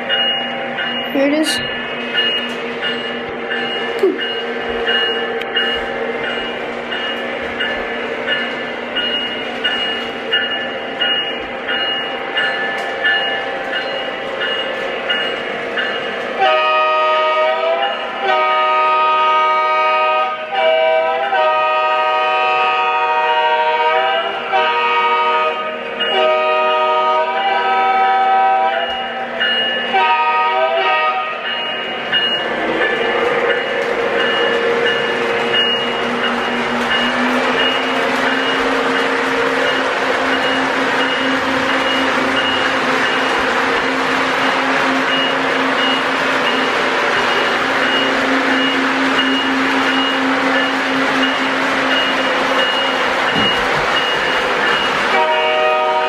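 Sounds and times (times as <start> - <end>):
diesel horn blasts: 16.4 - 28.8, 29.9 - 31.4, 55.1 - 56.0.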